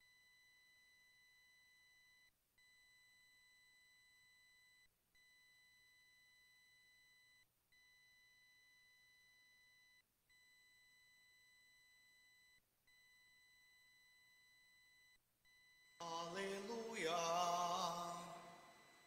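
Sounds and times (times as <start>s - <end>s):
faint electronic tone: 17.7s - 19.0s.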